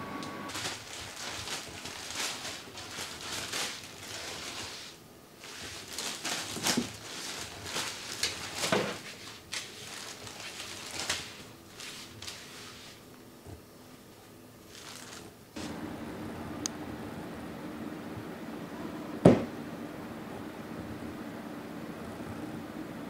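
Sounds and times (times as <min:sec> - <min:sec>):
plastic wrapper crinkling: 0:00.5 - 0:13.0, 0:14.6 - 0:15.4.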